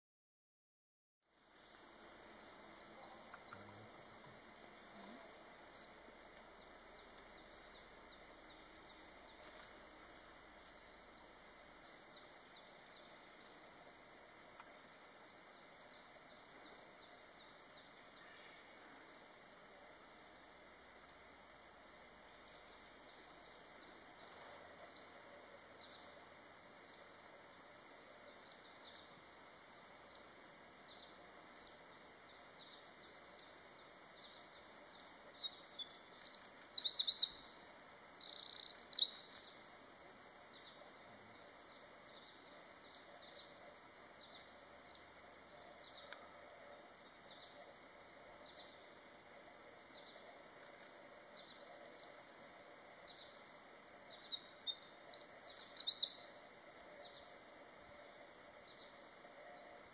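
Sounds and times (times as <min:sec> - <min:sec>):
faint high chirping: 0:15.1 - 0:52.4, 0:53.0 - 0:59.9
bird singing rapid trills: 0:25.6 - 0:49.0, 0:53.0 - 0:59.9.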